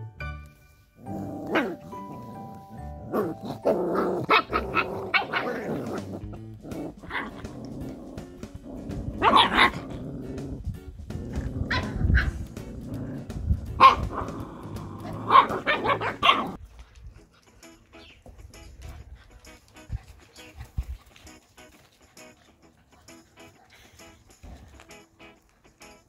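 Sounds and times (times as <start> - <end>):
puppies growling and yapping: 1.0 - 16.6.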